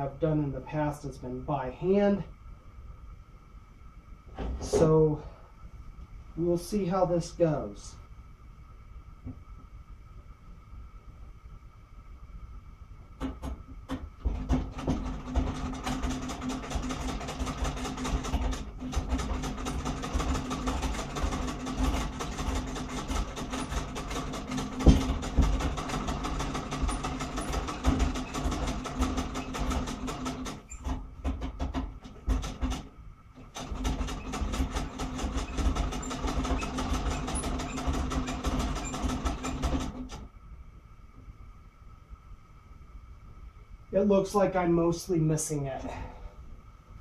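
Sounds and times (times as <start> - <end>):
sewing machine clattering: 14.2 - 40.2.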